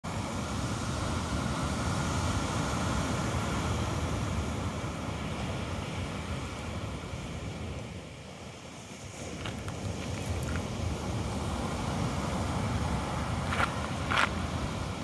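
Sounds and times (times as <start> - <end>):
ocean surf: 0.0 - 15.0
wind buffeting microphone: 8.8 - 15.0.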